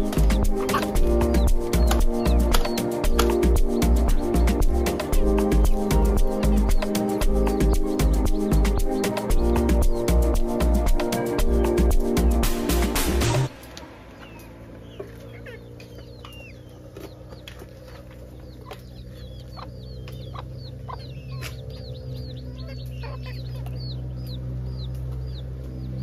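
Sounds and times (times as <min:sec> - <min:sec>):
chickens clucking and chirping: 0:00.0 - 0:26.0
steady low hum: 0:00.0 - 0:26.0
sharp clicks: 0:01.8 - 0:03.5.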